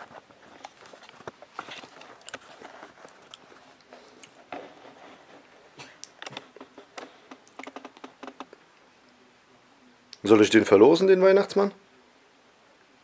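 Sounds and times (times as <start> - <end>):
soft rustling: 0.0 - 8.5.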